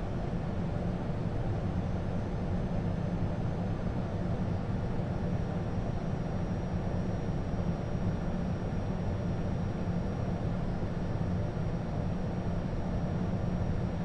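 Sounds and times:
jet engine and airflow rumble: 0.0 - 14.0.

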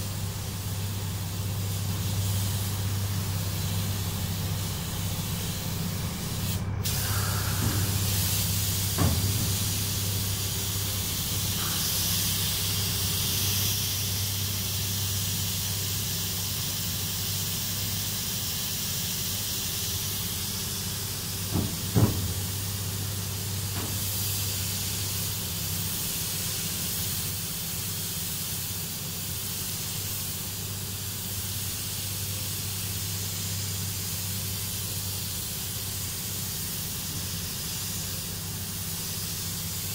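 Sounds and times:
spray booth airy hiss: 0.0 - 39.9
brief knocks: 21.5 - 22.5.

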